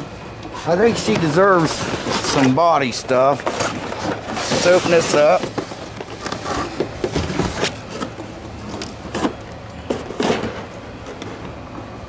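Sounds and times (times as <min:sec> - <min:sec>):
cardboard box scraping and rustling: 0:00.6 - 0:11.1.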